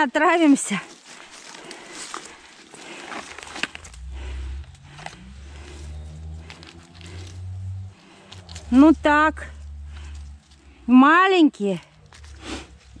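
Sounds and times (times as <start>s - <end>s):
dry leaves rustling and crackling: 0.2s - 10.9s, 11.7s - 13.0s
mushrooms snapping: 0.8s - 7.4s, 8.0s - 8.8s
low rumble: 2.8s - 13.0s.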